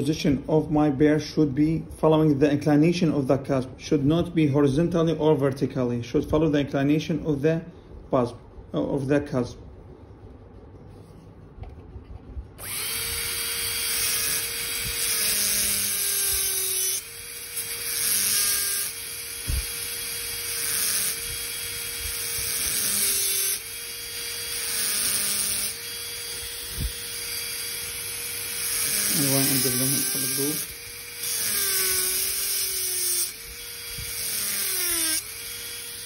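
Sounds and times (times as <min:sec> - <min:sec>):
dental drill whining: 0:12.6 - 0:36.0.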